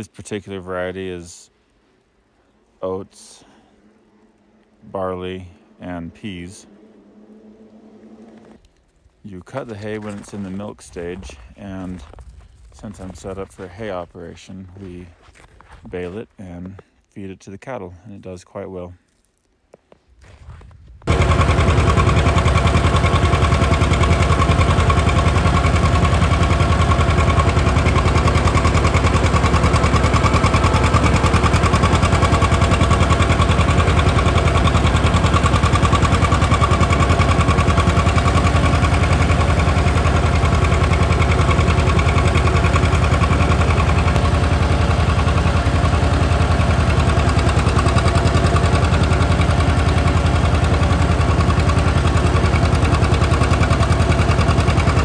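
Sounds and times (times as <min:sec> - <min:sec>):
tractor engine exhaust popping: 0:09.3 - 0:16.3, 0:21.0 - 0:55.0.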